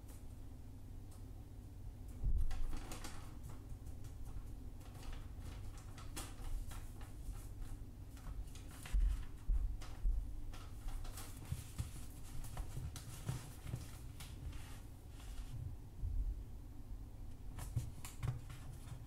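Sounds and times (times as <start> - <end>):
paper rustling and crinkling: 2.5 - 15.6.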